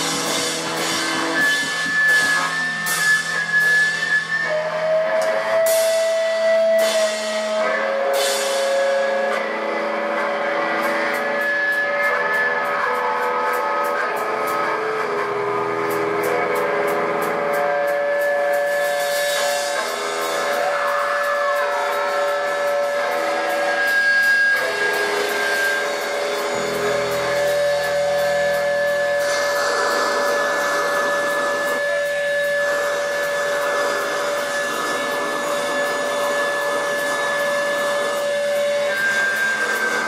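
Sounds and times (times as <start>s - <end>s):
cymbal strokes: 0.0s - 40.0s
live rock band playing: 0.0s - 40.0s
long held note: 17.7s - 40.0s.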